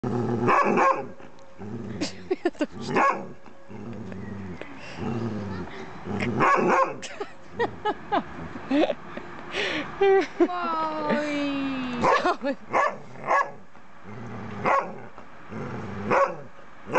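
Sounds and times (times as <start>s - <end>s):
dog barking: 0.5s - 1.1s, 2.9s - 3.3s, 6.4s - 7.0s, 12.0s - 13.6s, 14.6s - 15.0s, 16.1s - 16.5s
dog growling: 1.6s - 3.0s, 3.7s - 6.6s, 14.0s - 14.8s, 15.5s - 16.2s.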